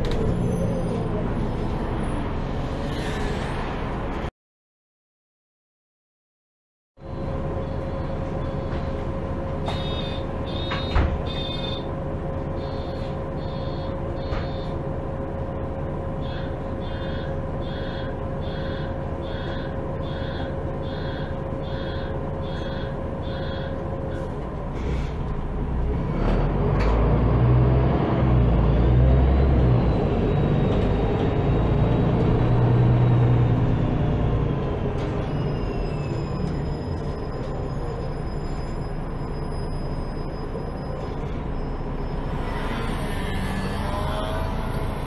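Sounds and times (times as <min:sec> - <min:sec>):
bus engine rumble: 0:00.0 - 0:04.3, 0:07.0 - 0:45.0
door warning beeper: 0:09.7 - 0:11.9, 0:12.6 - 0:14.8, 0:16.3 - 0:23.8.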